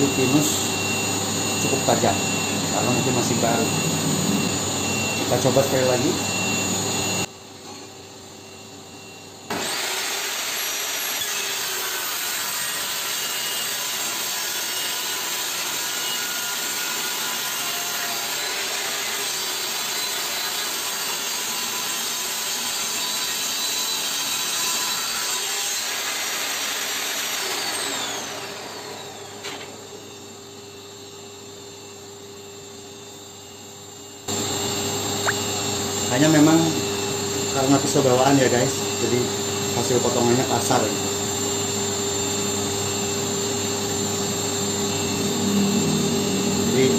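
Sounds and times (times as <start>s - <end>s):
table saw whining: 0.0s - 46.9s
saw ripping a board: 9.5s - 29.0s.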